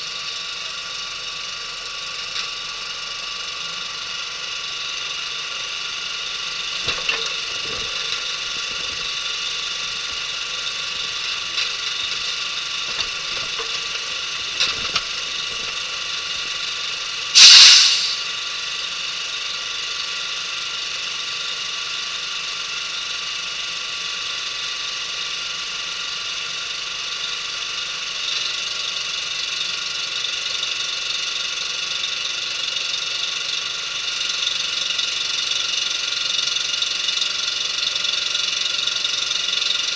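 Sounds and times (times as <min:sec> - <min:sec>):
heavy equipment engine idling: 0:00.0 - 0:39.9
loud hiss: 0:17.4 - 0:18.3.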